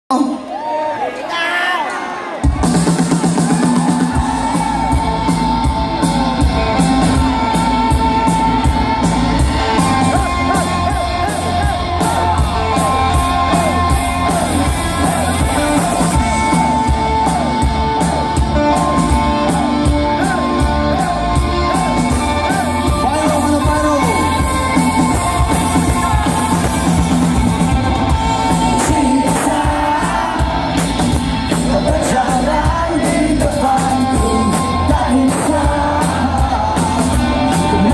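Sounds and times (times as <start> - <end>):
electric guitars: 2.4 - 37.9
live band playing: 2.4 - 37.9
steady drum beat: 2.4 - 37.9
person singing: 3.2 - 37.9.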